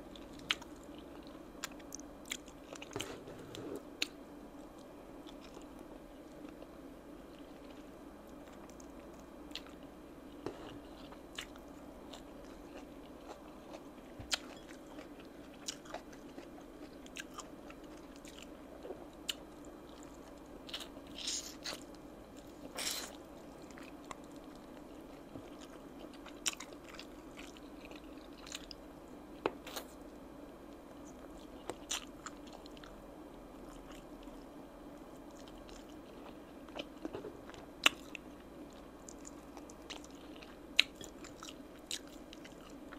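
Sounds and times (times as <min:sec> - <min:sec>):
chewing crunchy chicken wings: 0:07.3 - 0:28.8, 0:31.0 - 0:33.0, 0:35.3 - 0:42.9.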